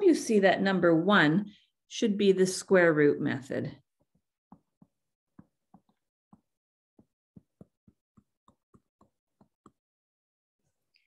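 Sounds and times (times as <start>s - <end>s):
stylus tapping on touchscreen: 4.5s - 9.8s.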